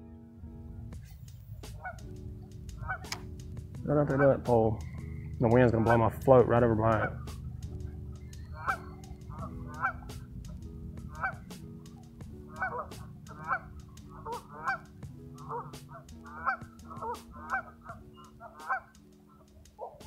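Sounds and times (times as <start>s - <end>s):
wind rumbling on microphone: 0.4s - 18.9s
geese honking: 1.2s - 20.0s.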